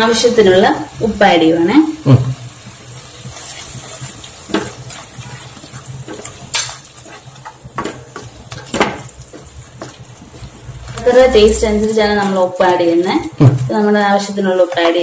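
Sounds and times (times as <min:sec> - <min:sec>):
light frying sizzle: 0:00.0 - 0:15.0
spatula stirring thick masala: 0:02.8 - 0:15.0
spatula scraping pan: 0:03.2 - 0:15.0.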